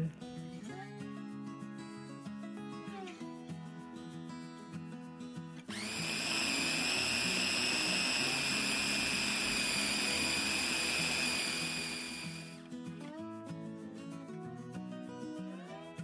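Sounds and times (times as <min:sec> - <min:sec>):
food chopper motor whining: 0:05.6 - 0:12.6.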